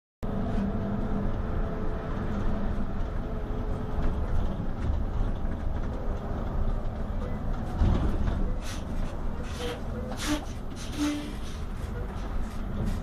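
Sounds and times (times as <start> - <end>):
coach engine drone: 0.2 - 13.0
road rumble: 0.2 - 13.0.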